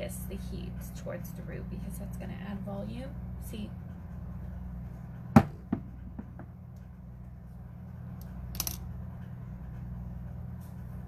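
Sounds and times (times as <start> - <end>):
steady low hum: 0.0 - 11.0
hairstyling tools clicking: 8.2 - 8.9.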